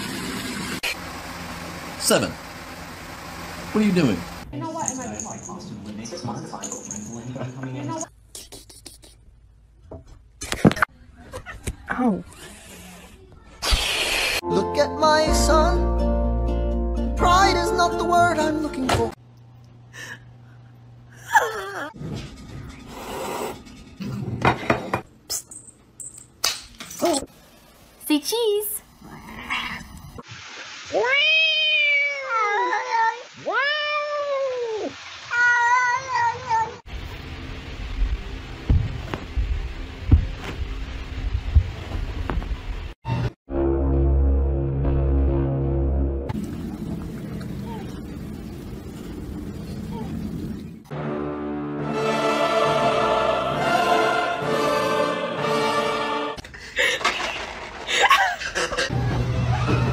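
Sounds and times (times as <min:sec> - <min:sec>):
cat meowing: 0:31.0 - 0:36.8
choir-like background music: 0:50.9 - 0:56.4.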